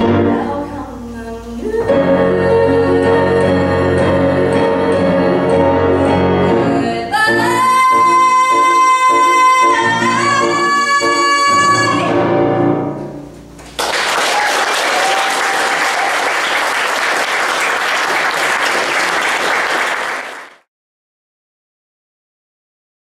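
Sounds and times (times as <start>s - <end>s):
instrumental accompaniment: 0.0s - 13.7s
audience applause: 13.7s - 20.7s.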